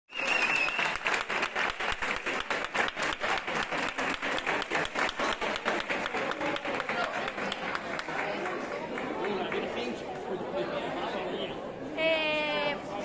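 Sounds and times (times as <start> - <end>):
crowd clapping in rhythm: 0.1 - 10.3.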